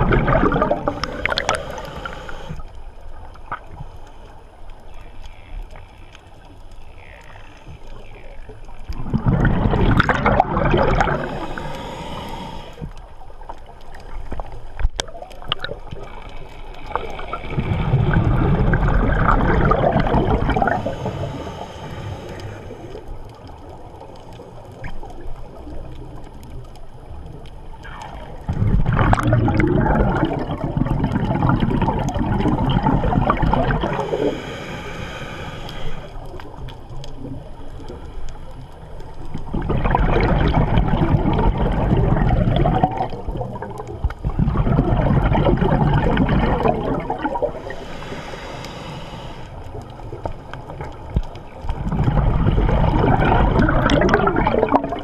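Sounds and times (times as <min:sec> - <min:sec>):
underwater exhalation bubbling: 0:00.0 - 0:02.6, 0:08.9 - 0:12.9, 0:15.0 - 0:23.0, 0:27.8 - 0:38.0, 0:39.1 - 0:55.0
regulator inhalation hiss: 0:00.9 - 0:02.6, 0:11.1 - 0:12.9, 0:20.7 - 0:23.0, 0:33.9 - 0:36.3, 0:47.5 - 0:49.7.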